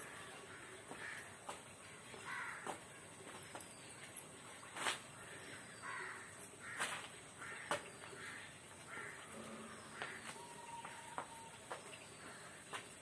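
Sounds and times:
crow cawing: 0.4 - 1.3, 2.1 - 2.8, 5.3 - 11.5.

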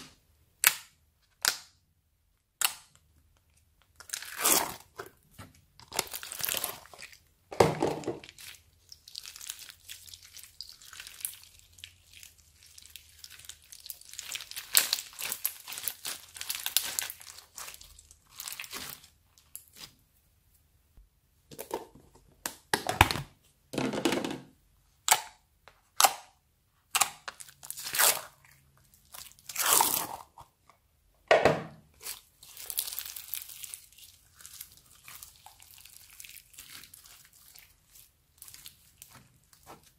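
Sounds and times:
slime crackling and tearing: 3.9 - 5.0, 5.8 - 7.2, 8.2 - 19.9, 26.9 - 30.4, 32.0 - 39.9.

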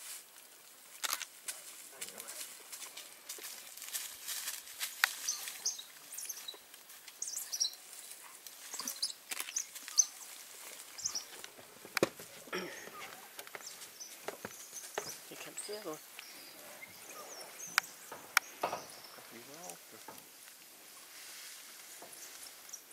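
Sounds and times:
rustling in dry leaves: 0.0 - 22.9
pups chirping: 4.9 - 20.4
low animal call: 12.3 - 13.4, 16.3 - 20.2
small knocks: 17.7 - 20.3.

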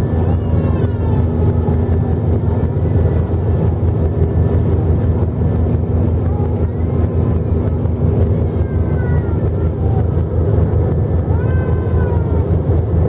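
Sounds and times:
faint high-pitched gliding calls: 0.0 - 4.6, 5.4 - 10.3
airplane cabin engine rumble: 0.0 - 13.0.

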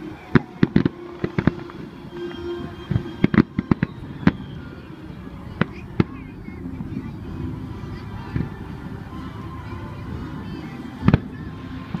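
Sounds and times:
fireworks bangs and crackles: 0.0 - 9.4, 11.0 - 12.0.

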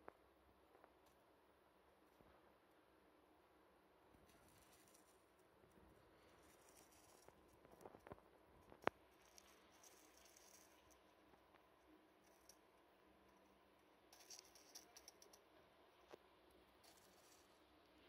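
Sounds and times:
faint crackling ticks: 6.5 - 12.7, 13.3 - 15.5.

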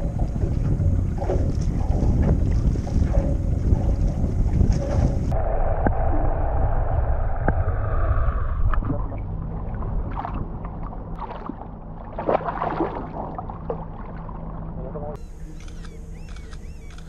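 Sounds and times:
water lapping beside a boat: 0.0 - 5.3, 9.4 - 17.0
low steady rumble: 0.0 - 17.0
sharp water splashes: 11.1 - 14.7.

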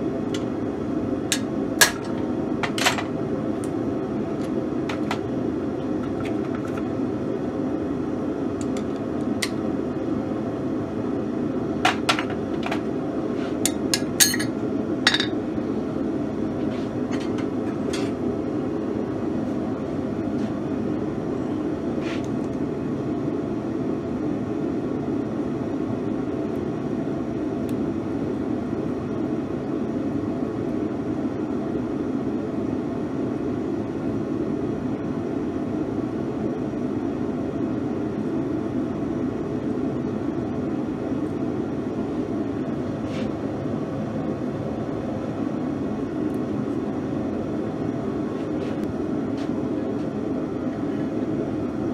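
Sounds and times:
metal tools clinking on anvil: 14.0 - 14.5.

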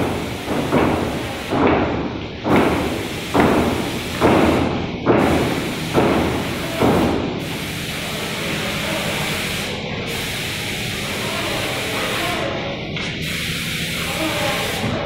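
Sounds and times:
paint sprayer pump thumping: 0.0 - 7.7
paint sprayer hiss: 0.0 - 15.0.

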